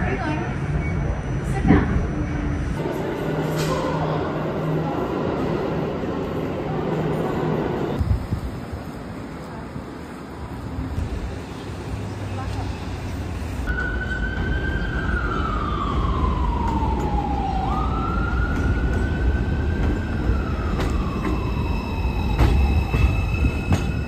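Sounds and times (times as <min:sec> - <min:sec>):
siren wailing: 0:13.7 - 0:23.7.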